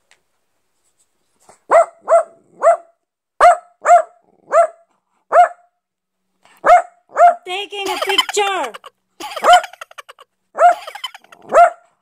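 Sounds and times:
dog barking: 1.7 - 5.8, 6.6 - 7.4, 9.4 - 9.8, 10.6 - 12.0.

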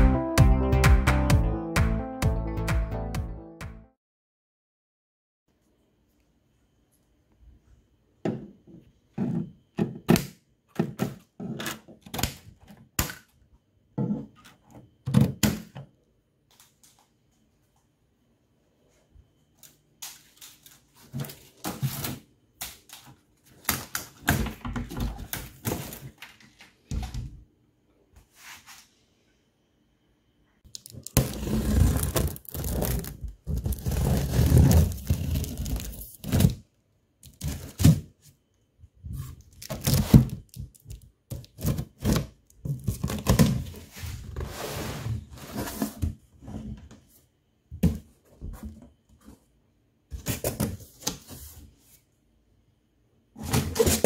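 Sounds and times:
plastic film tearing and crinkling: 30.8 - 36.6.

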